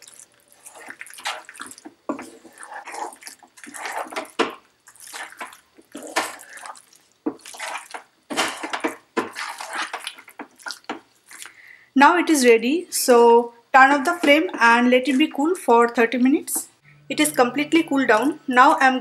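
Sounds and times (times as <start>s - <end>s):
spatula stirring sticky macaroni: 0.0s - 11.6s.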